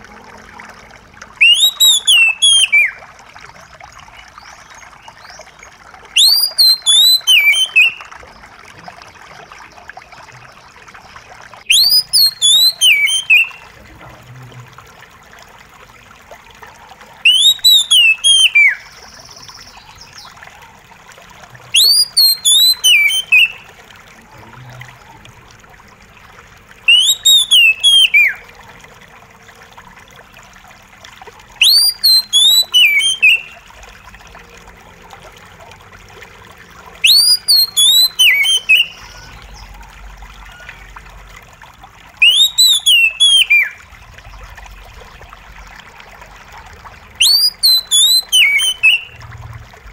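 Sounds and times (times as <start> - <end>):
water trickling: 0.0 - 49.9
bird singing whistled phrase: 1.4 - 3.0, 6.2 - 8.1, 11.7 - 13.6, 17.2 - 19.9, 21.7 - 23.6, 26.9 - 28.4, 31.6 - 33.6, 37.0 - 39.6, 42.2 - 43.8, 47.2 - 49.2.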